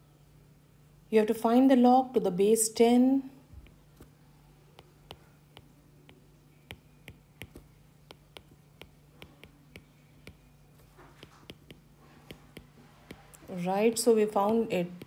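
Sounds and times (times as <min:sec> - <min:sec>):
faint steady hum: 0:00.0 - 0:15.0
stylus tapping on screen: 0:03.5 - 0:15.0.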